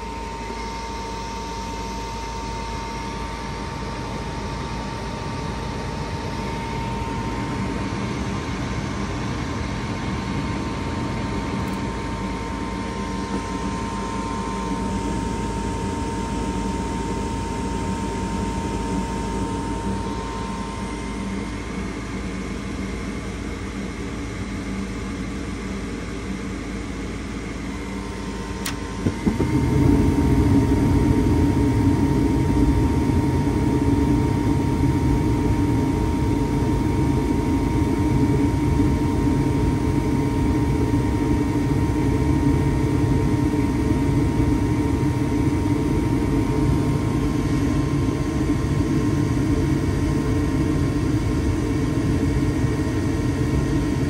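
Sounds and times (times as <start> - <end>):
furnace fan whine: 0.0 - 54.0
gas burner roaring: 27.1 - 54.0.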